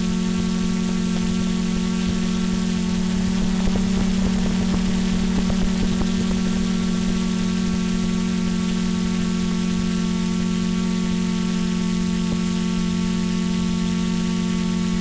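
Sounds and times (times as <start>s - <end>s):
drone propellers buzzing: 0.0s - 11.2s.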